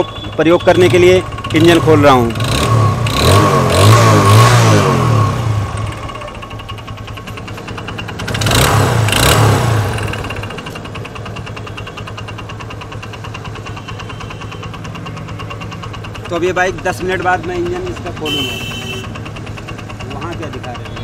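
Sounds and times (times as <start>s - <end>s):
motorcycle engine revving and idling: 0.0s - 21.0s.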